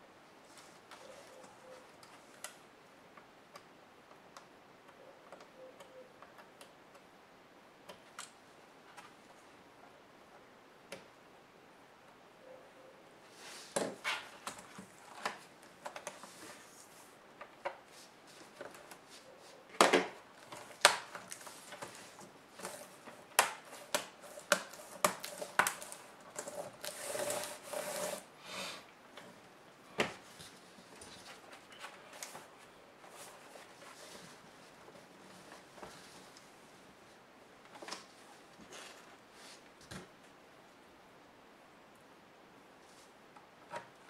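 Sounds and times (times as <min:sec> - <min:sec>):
rubbing or scraping: 0:13.3 - 0:15.4, 0:21.3 - 0:28.8.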